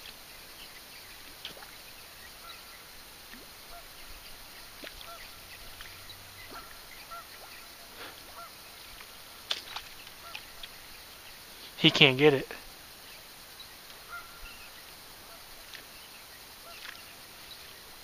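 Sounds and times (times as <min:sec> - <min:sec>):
low steady background hiss: 0:00.0 - 0:18.0
waterfowl calling: 0:02.3 - 0:02.9, 0:03.6 - 0:12.4, 0:13.8 - 0:15.8, 0:16.5 - 0:17.6.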